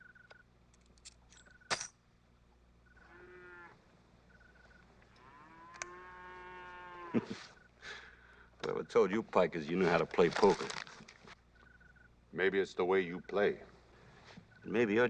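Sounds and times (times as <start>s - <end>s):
faint high chirp: 4.3s - 4.9s, 11.5s - 12.2s
cattle lowing: 4.4s - 8.2s.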